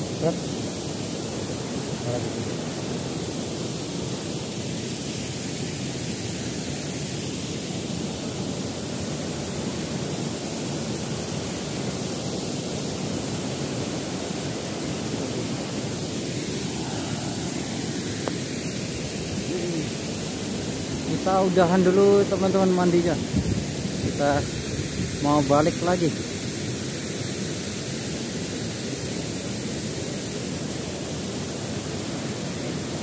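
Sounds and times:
waterfall roaring: 0.0s - 33.0s.

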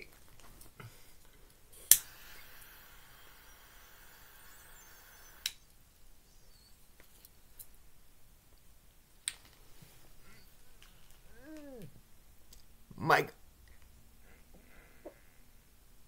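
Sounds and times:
lighter flame hiss: 1.8s - 5.8s
sharp click: 1.9s - 2.1s, 5.3s - 5.7s.

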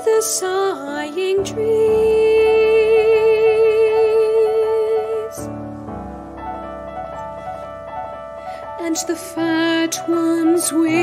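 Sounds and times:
soprano singing with vibrato: 0.0s - 5.5s, 8.8s - 11.0s
piano accompaniment: 0.0s - 11.0s.

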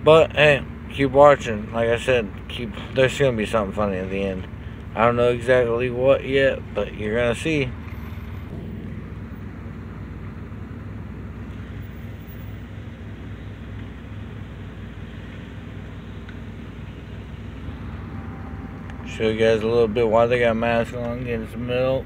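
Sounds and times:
car engine humming: 0.0s - 22.0s.

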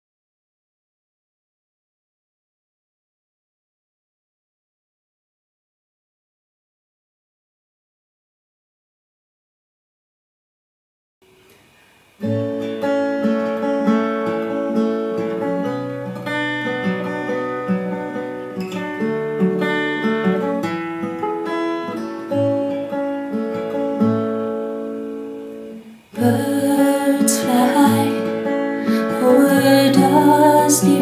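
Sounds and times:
acoustic guitar picked chords: 11.2s - 31.0s.

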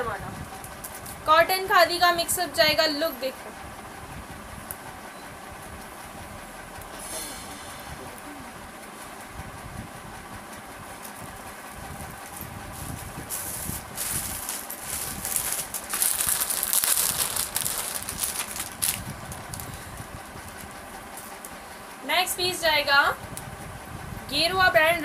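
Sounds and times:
fabric rustling and crinkling: 12.7s - 19.8s.

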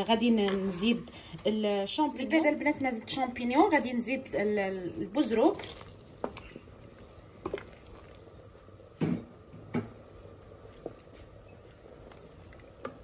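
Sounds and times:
wooden spoon stirring pot: 3.0s - 13.0s
soup splashing: 5.0s - 13.0s.

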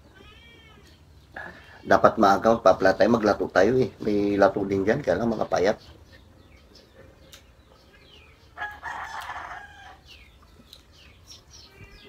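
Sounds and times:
high bird chirps: 5.5s - 12.0s
rooster crowing: 8.6s - 10.2s.

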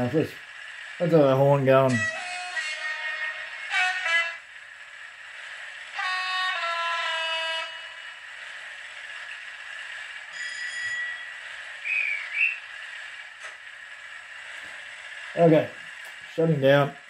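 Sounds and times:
diesel engine running from speaker: 0.0s - 17.0s
two-tone locomotive horn: 1.9s - 4.5s, 5.9s - 8.2s, 10.3s - 12.6s.

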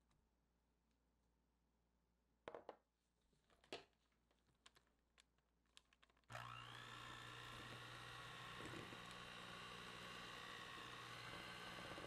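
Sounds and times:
electric hand mixer running: 6.3s - 12.0s.

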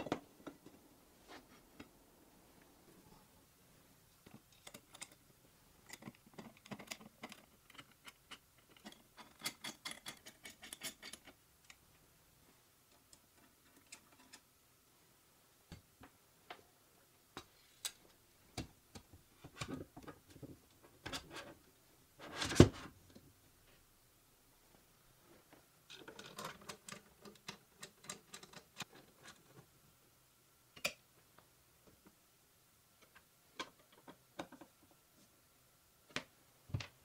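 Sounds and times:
pencil scratching and tapping on metal: 5.9s - 11.4s.

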